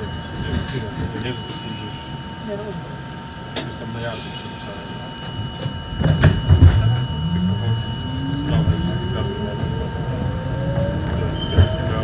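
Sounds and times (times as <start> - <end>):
train car rumble: 3.5 - 12.0
train motor whine rising: 5.0 - 12.0.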